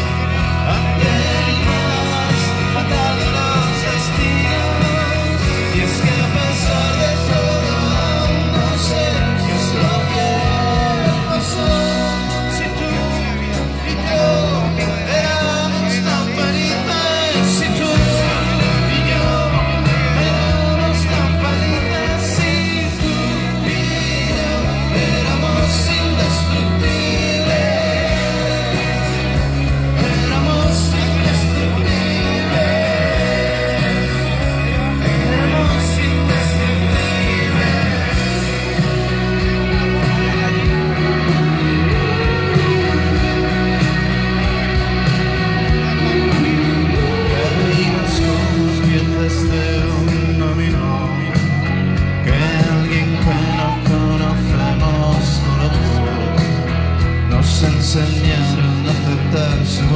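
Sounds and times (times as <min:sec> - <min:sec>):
drums: 0:00.0 - 0:59.9
electric guitars: 0:00.0 - 0:59.9
man singing: 0:00.0 - 0:59.9.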